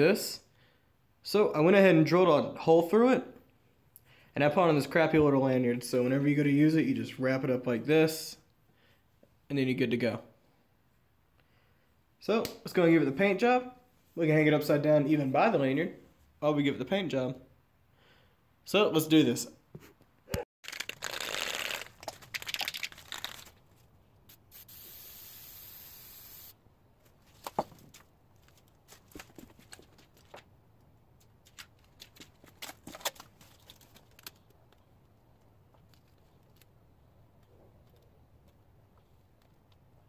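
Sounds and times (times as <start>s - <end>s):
tape tearing off a roll: 20.6s - 23.6s
spray paint can hissing: 24.3s - 26.6s.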